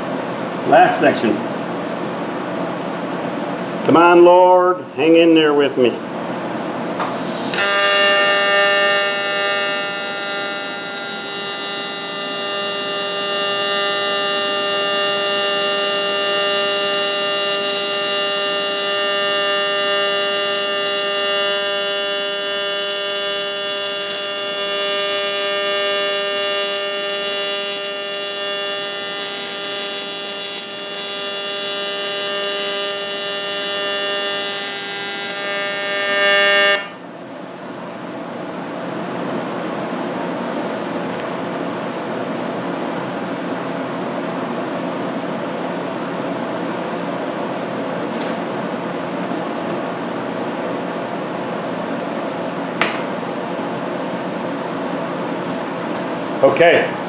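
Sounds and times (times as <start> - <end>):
welding arc buzzing: 7.0 - 38.4.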